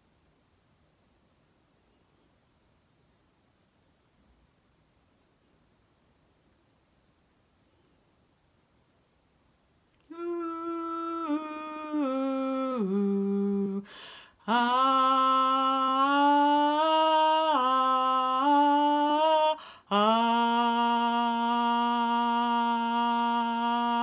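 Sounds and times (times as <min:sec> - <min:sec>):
woman singing held notes: 0:10.0 - 0:24.0.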